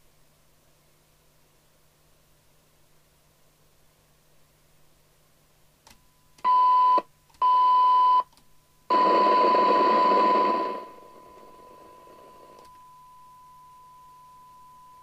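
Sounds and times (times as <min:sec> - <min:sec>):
radio hiss: 0:08.9 - 0:12.6
test tone from radio speaker: 0:08.9 - 0:15.0.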